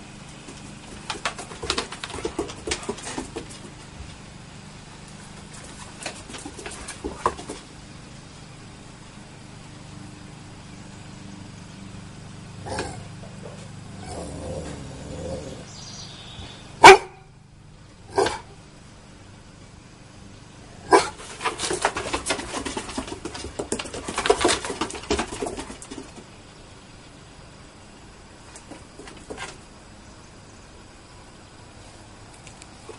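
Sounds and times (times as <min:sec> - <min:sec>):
steady low hum: 0:00.0 - 0:32.9
dog claws tapping on wooden deck: 0:00.3 - 0:04.2, 0:05.3 - 0:07.7, 0:20.9 - 0:26.3, 0:28.5 - 0:29.6
dogs growling and grunting: 0:12.6 - 0:15.7, 0:18.1 - 0:18.6
dog barking: 0:16.8 - 0:17.3, 0:18.1 - 0:18.5, 0:20.8 - 0:21.2.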